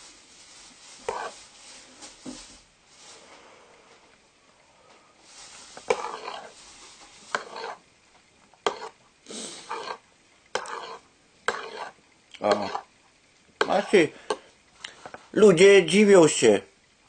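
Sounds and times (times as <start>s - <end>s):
soup slurping: 5.8s - 6.5s, 7.3s - 7.8s, 8.6s - 10.0s, 10.6s - 12.9s.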